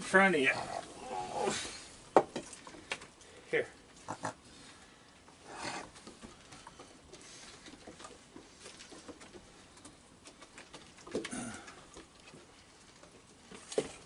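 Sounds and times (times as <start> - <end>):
raccoon feet pattering on wood: 5.1 - 14.0.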